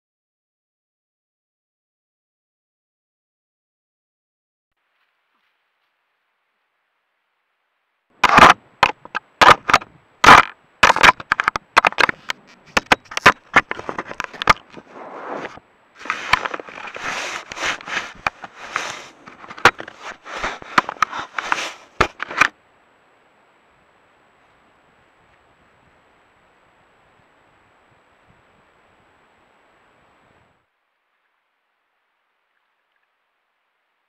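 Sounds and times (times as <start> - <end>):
bear knocking and scraping camera: 8.2 - 22.5.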